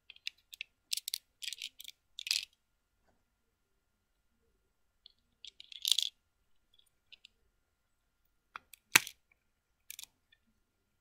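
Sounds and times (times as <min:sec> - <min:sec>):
plastic toy bricks clicking: 0:00.0 - 0:02.6, 0:05.1 - 0:07.4, 0:08.6 - 0:10.2.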